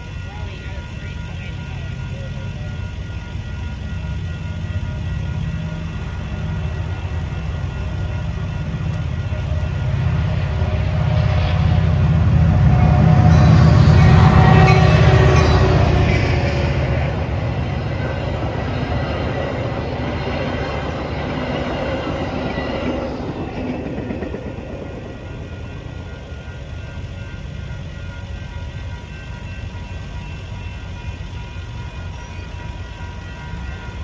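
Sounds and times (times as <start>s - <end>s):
crossing bells ringing: 0.0s - 34.0s
train wheels clickety-clack: 17.8s - 26.0s.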